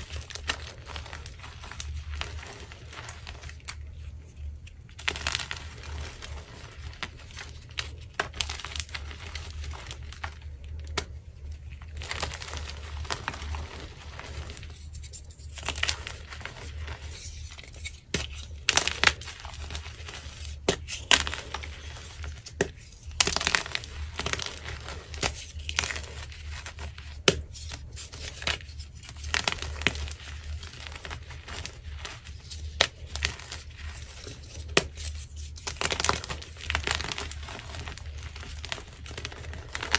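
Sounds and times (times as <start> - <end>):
chalk chunks snapping: 12.0 - 39.9.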